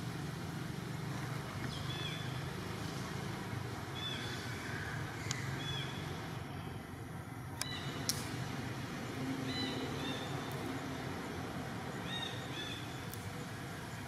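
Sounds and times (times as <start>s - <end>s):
sharp click: 7.6s - 8.3s.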